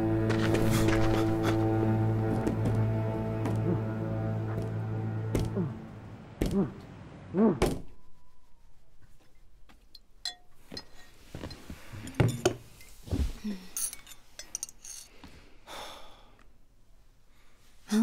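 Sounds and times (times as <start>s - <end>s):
spoon clinking against bowl: 10.2s - 11.2s, 13.8s - 15.1s.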